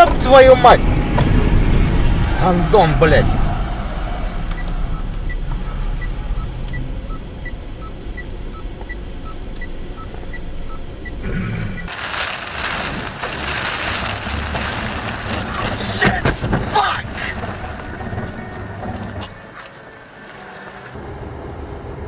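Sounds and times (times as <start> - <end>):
road and engine rumble: 0.0 - 22.0
turn signal ticking: 3.7 - 11.9
tyres on flooded road: 11.5 - 22.0
heavy rain on windscreen: 11.9 - 22.0.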